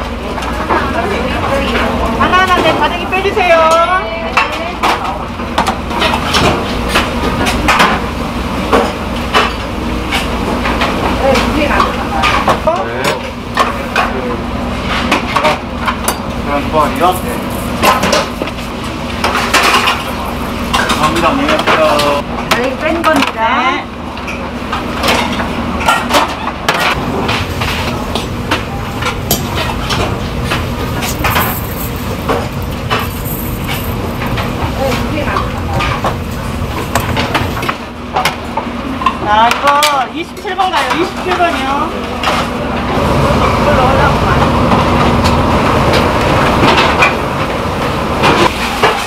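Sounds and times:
low kitchen rumble: 0:00.0 - 0:49.0
steel bowls and utensils clinking: 0:27.8 - 0:36.2
steel bowls clinking: 0:31.0 - 0:34.5.

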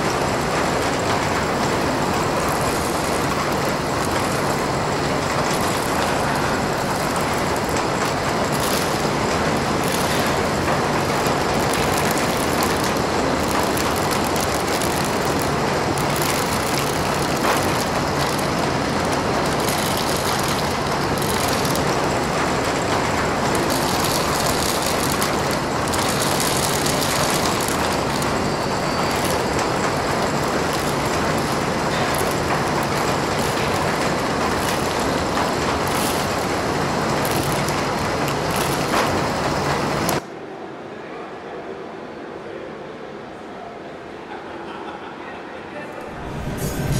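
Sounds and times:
grains clattering: 0:11.2 - 0:22.1, 0:23.5 - 0:36.5.

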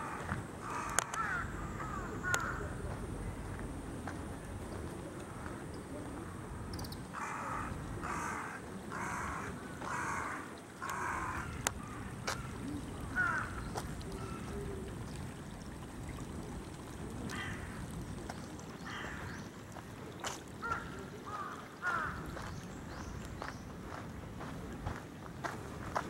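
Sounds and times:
crows cawing: 0:00.0 - 0:02.7, 0:07.1 - 0:13.6, 0:17.3 - 0:17.8, 0:18.9 - 0:19.4, 0:20.6 - 0:22.2.

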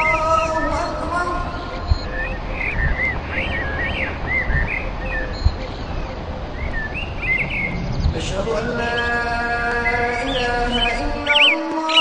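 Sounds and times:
steady low rumble: 0:00.0 - 0:11.3
birds chirping: 0:00.0 - 0:12.0.

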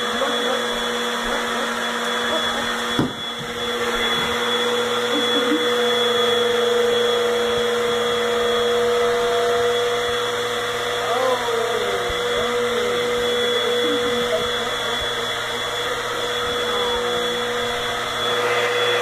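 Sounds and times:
vacuum cleaner running: 0:00.0 - 0:19.0
knock: 0:03.0 - 0:03.2.

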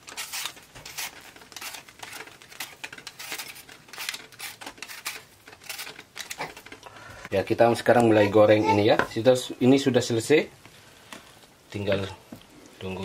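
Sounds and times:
peeler scraping apple skin: 0:00.0 - 0:06.8.

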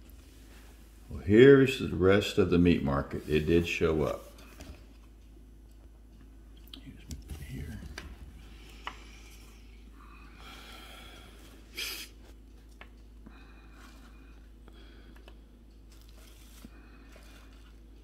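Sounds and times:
quiet breathing: 0:06.8 - 0:12.4, 0:13.1 - 0:18.0.

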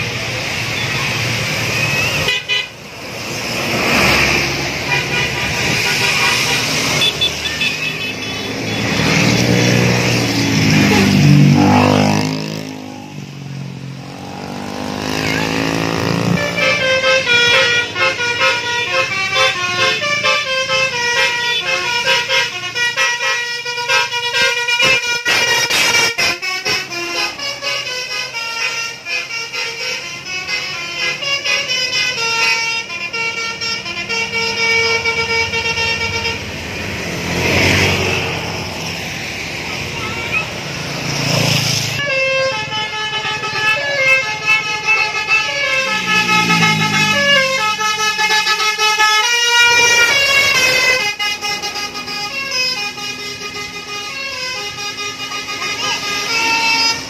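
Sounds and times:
vehicle rushing past: 0:00.0 - 0:17.3, 0:36.3 - 0:42.0, 0:45.3 - 0:48.1
coach engine passing: 0:00.0 - 0:22.8, 0:24.7 - 0:57.0
road traffic: 0:00.0 - 0:57.0
multi-tone air horn tune: 0:01.7 - 0:02.8, 0:03.7 - 0:09.5, 0:15.1 - 0:36.6, 0:42.0 - 0:57.0.

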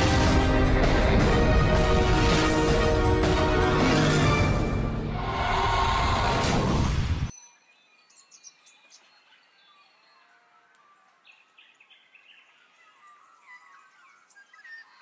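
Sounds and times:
small birds chirping and whistling: 0:07.3 - 0:15.0.

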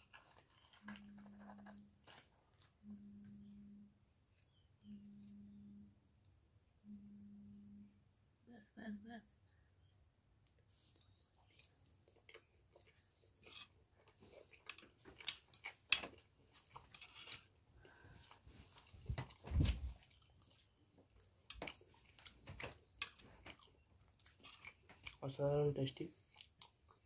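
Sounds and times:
person chewing: 0:00.0 - 0:03.0, 0:10.8 - 0:25.3, 0:26.1 - 0:27.0.

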